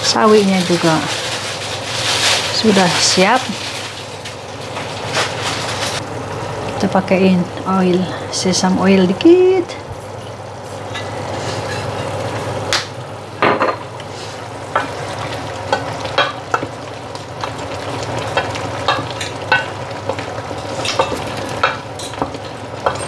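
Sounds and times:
food sizzling: 0:00.0 - 0:23.0
utensil clinking on cookware: 0:20.8 - 0:23.0.

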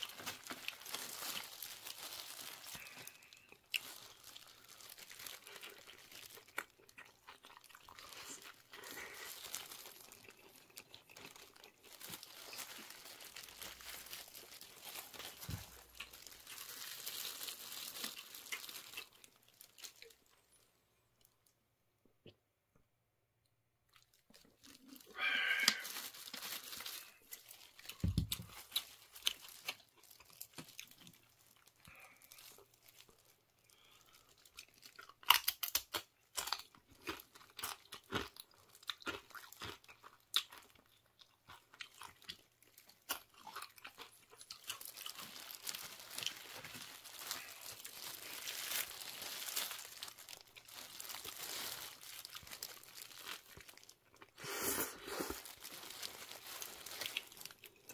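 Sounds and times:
plastic glove crinkling: 0:00.0 - 0:20.7, 0:24.0 - 0:34.9, 0:43.8 - 0:57.9
chewing: 0:05.0 - 0:12.9, 0:33.8 - 0:49.0
chips being crunched: 0:25.2 - 0:27.1.

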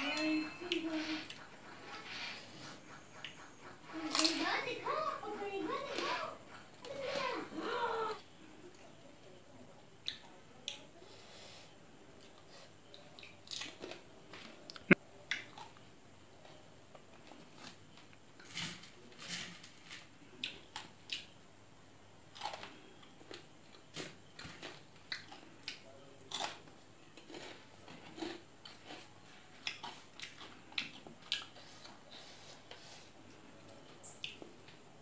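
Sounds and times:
chewing: 0:22.3 - 0:33.4.

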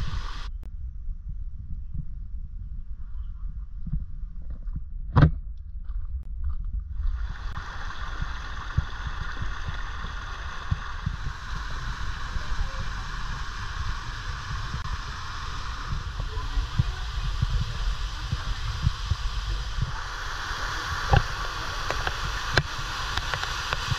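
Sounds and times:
waterfall rushing: 0:00.0 - 0:00.5, 0:07.1 - 0:23.9
low rumble and thumps on microphone: 0:00.0 - 0:23.9.

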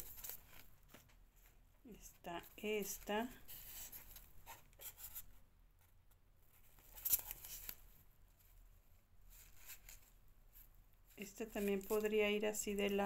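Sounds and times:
fabric flowers rustling: 0:09.3 - 0:13.0.

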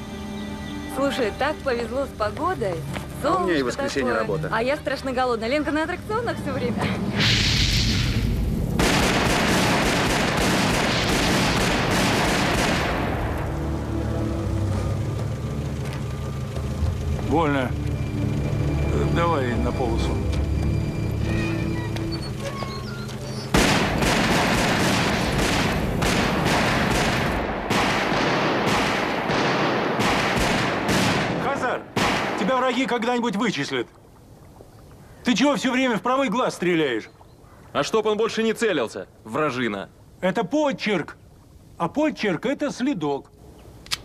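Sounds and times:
rapid automatic gunfire: 0:08.8 - 0:13.2, 0:23.6 - 0:32.5.

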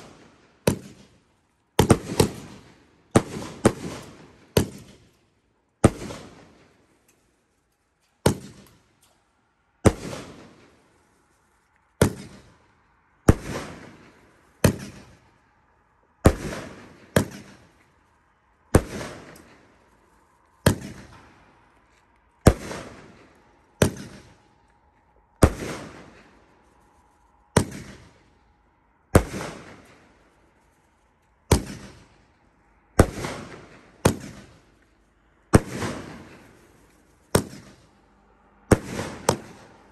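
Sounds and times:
fireworks bursting with echo: 0:00.0 - 0:05.2, 0:05.8 - 0:06.8, 0:09.8 - 0:10.9, 0:12.0 - 0:15.4, 0:16.2 - 0:17.9, 0:18.6 - 0:21.8, 0:22.4 - 0:24.8, 0:25.4 - 0:26.7, 0:27.4 - 0:28.4, 0:29.2 - 0:30.2, 0:31.5 - 0:32.2, 0:33.0 - 0:34.7, 0:35.6 - 0:37.9, 0:38.6 - 0:39.9.

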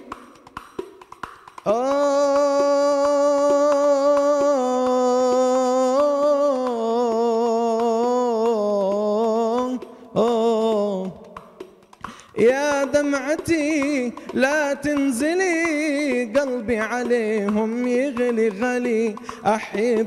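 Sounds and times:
man singing devotional song: 0:01.6 - 0:20.0
tambourine taps: 0:11.2 - 0:20.0.

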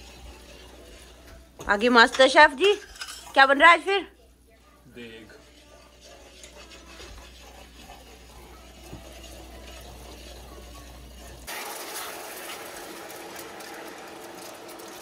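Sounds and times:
water hissing in hot pan: 0:00.0 - 0:01.2, 0:05.9 - 0:15.0
ladle scraping a saucepan: 0:00.0 - 0:03.4, 0:05.2 - 0:15.0.

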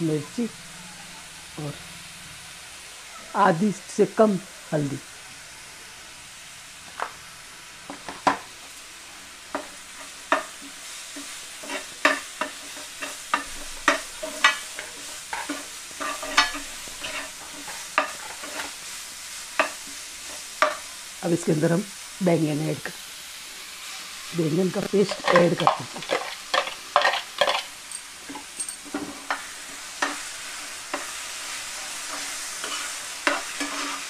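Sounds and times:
low steady sizzle: 0:00.0 - 0:34.0
spatula scraping and tapping pan: 0:09.5 - 0:18.8, 0:19.6 - 0:20.9, 0:25.0 - 0:34.0.

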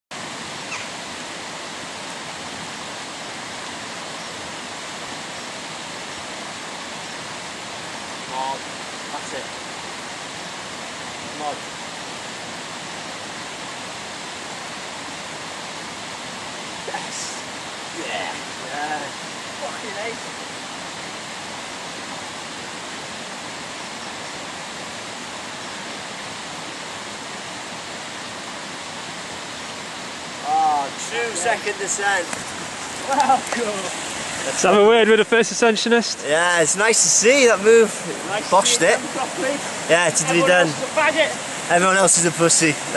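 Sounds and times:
steady rushing noise: 0:00.1 - 0:42.9
faint high chirp: 0:00.6 - 0:00.9.

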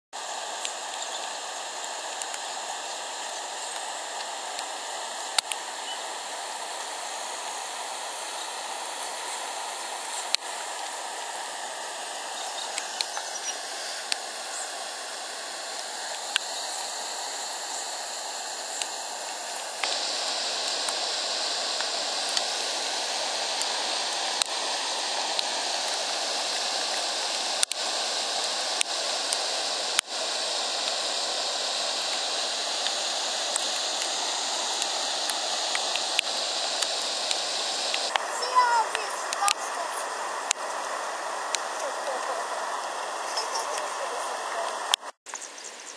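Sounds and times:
floodwater rushing: 0:18.4 - 0:45.0.

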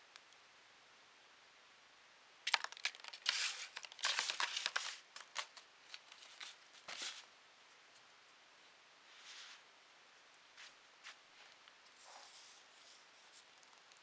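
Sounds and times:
foil ball crinkling in box: 0:02.5 - 0:07.3.

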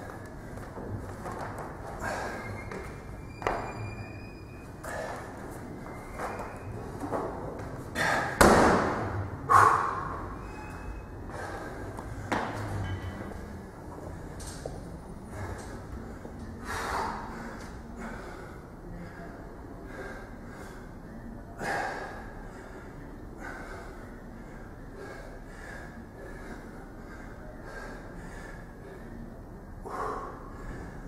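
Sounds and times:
man breathing hard: 0:01.8 - 0:03.0, 0:04.8 - 0:05.7, 0:07.9 - 0:08.4, 0:09.4 - 0:12.4, 0:15.2 - 0:31.0.

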